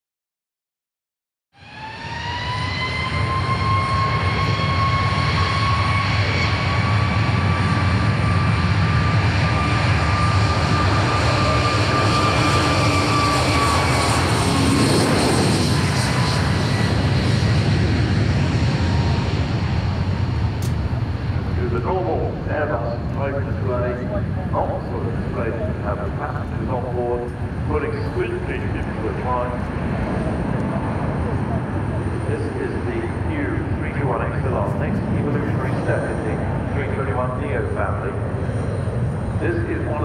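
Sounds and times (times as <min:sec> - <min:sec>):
jet engines running with whine: 0:01.6 - 0:40.0.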